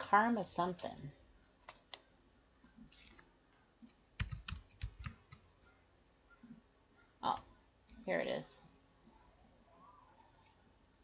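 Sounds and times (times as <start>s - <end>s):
faint keyboard typing: 0.8s - 6.4s.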